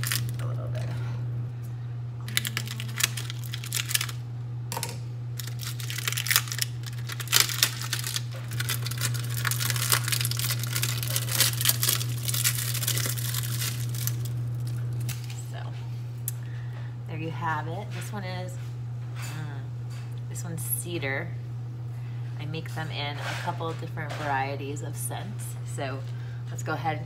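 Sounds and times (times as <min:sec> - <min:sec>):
plastic wrap crinkling: 0:00.0 - 0:00.6, 0:02.2 - 0:04.2, 0:05.4 - 0:15.4
steady low hum: 0:00.0 - 0:27.0.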